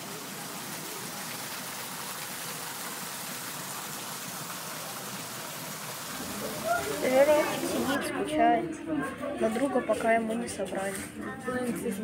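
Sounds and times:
waterfall splashing into pond: 0.0 - 8.0.

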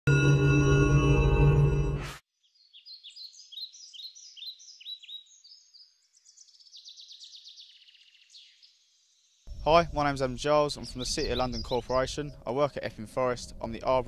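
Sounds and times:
ringing gong-like tone: 0.1 - 2.2
songbird singing: 2.4 - 14.0.

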